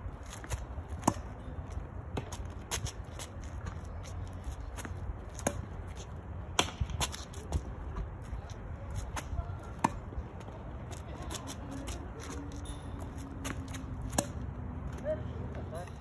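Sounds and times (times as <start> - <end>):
tennis balls popping off rackets: 0.4 - 1.5, 8.9 - 14.5.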